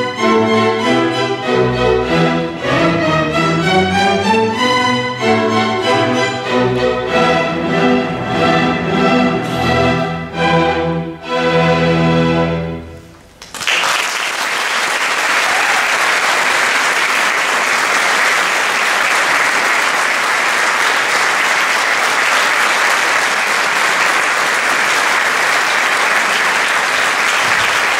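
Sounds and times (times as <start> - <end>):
audience applauding: 13.4 - 27.9.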